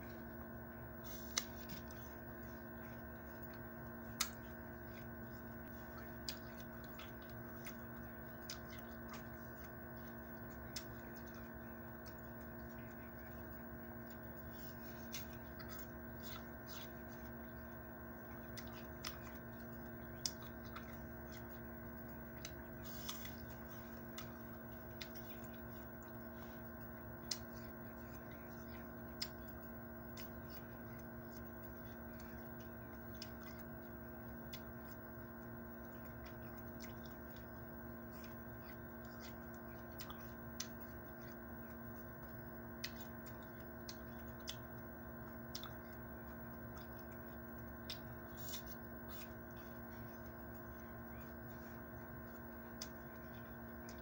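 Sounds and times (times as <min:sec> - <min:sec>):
faint steady hum: 0:00.0 - 0:54.0
mouth clicks and smacks eating: 0:00.0 - 0:54.0.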